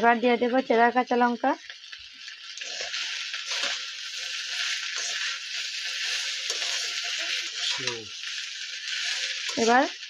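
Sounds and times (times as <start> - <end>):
cauliflower sizzling in oil: 0.0 - 10.0
metal spatula stirring in wok: 2.6 - 10.0.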